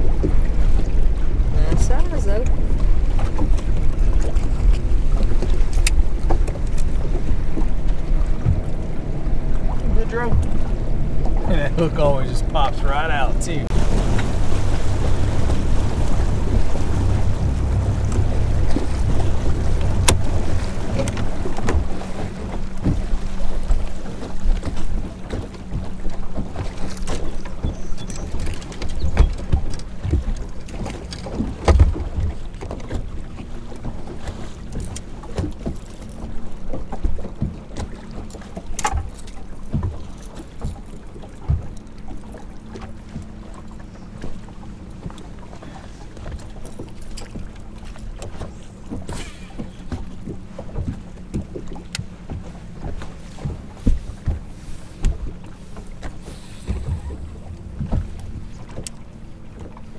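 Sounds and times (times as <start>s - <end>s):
wind buffeting microphone: 0.0s - 38.4s
water slapping against hull: 0.0s - 59.9s
steady low hum: 7.0s - 25.1s.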